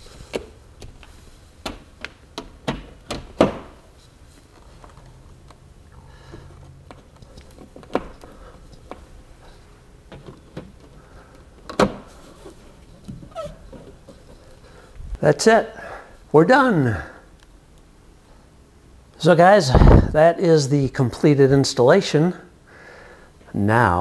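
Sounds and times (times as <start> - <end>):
clicks and taps handling speaker: 6.3 - 9.1.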